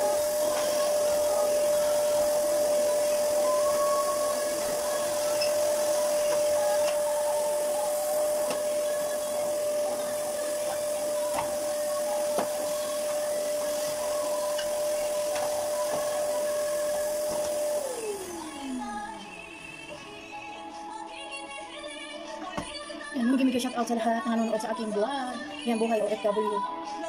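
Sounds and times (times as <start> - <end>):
vacuum cleaner running: 0.0 - 20.4.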